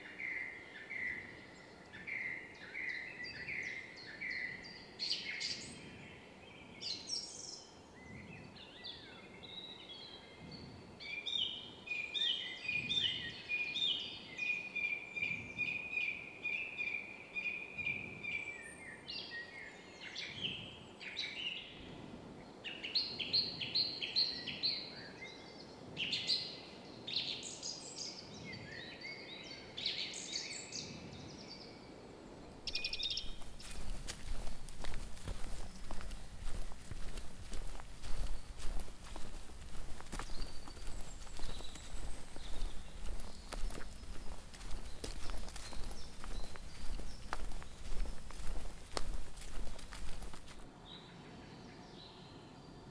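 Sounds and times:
songbirds singing: 0.0 - 52.9
broad crackling noise: 32.6 - 50.7.

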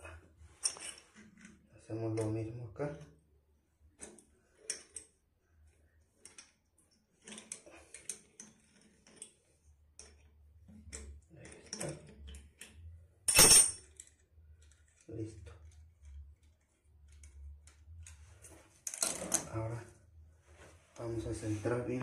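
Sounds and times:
sharp metallic clack: 13.3 - 13.8.

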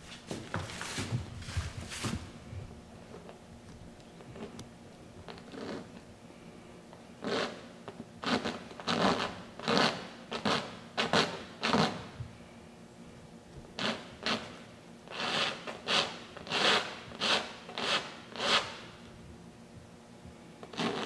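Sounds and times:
tool scraping canvas: 0.0 - 2.3, 5.3 - 6.0, 7.2 - 7.6, 8.2 - 12.1, 13.8 - 18.9, 20.6 - 21.0.

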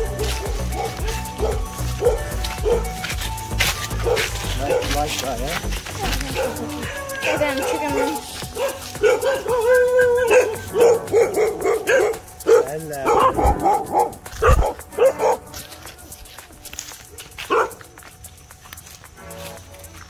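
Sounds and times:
dog barking and yelping: 0.0 - 3.0, 4.0 - 5.0, 6.0 - 16.1, 17.1 - 17.8.

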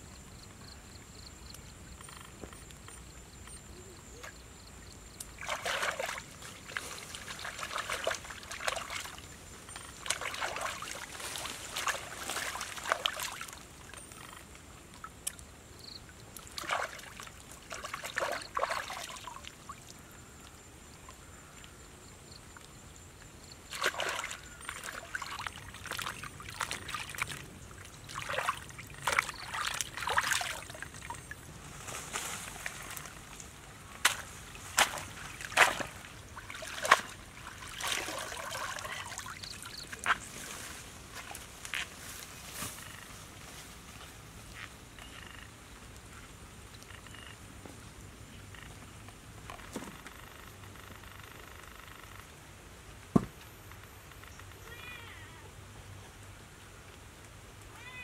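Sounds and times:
water sloshing and splashing: 5.2 - 20.0, 23.6 - 41.8.

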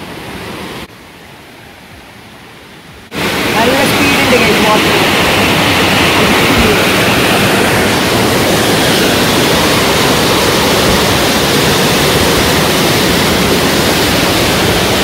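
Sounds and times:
wind buffeting microphone: 3.0 - 15.0.

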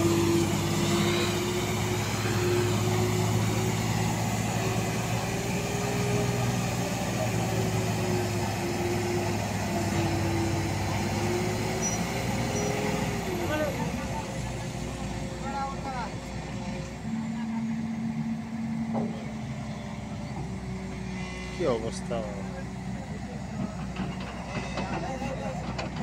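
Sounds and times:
hydraulic whine: 0.0 - 15.2
excavator diesel engine drone: 0.0 - 26.0.

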